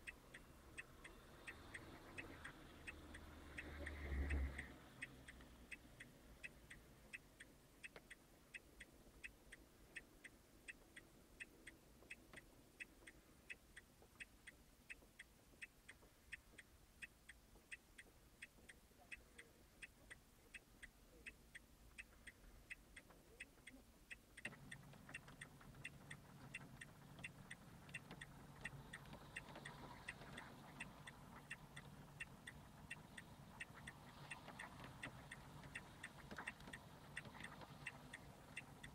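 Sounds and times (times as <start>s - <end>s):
low steady rumble: 0.0s - 38.9s
fast mechanical ticking: 24.1s - 38.9s.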